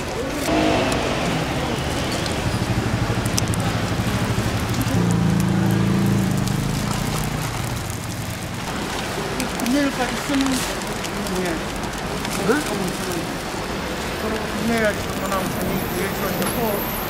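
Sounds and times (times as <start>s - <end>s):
oil sizzling on a griddle: 0.4s - 17.0s
low droning hum: 0.5s - 8.9s.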